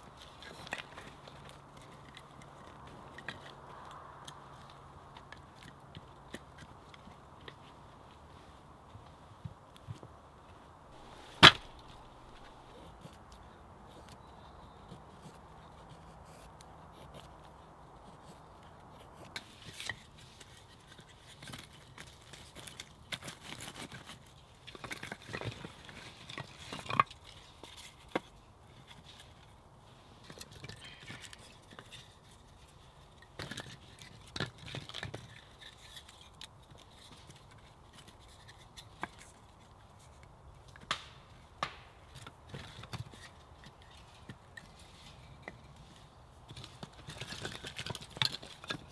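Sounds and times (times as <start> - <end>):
firewood knocking and scraping: 10.9 - 13.2.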